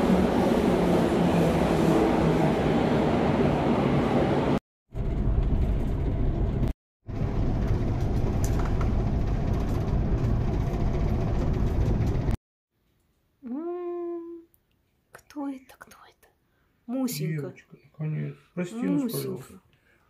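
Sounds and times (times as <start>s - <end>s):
vehicle rumble from inside: 4.9s - 12.4s.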